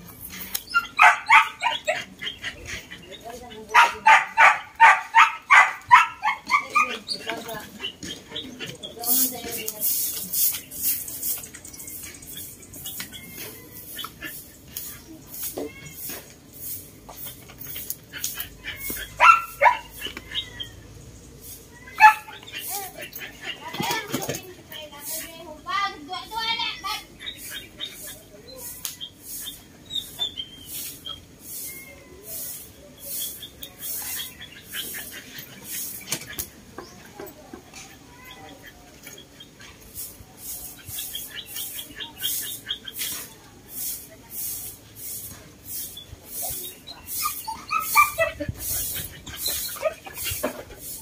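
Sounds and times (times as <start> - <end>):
birds chirping: 0.0 - 51.0
dog barking: 0.8 - 1.9, 3.7 - 7.0, 19.1 - 20.0, 22.0 - 22.3.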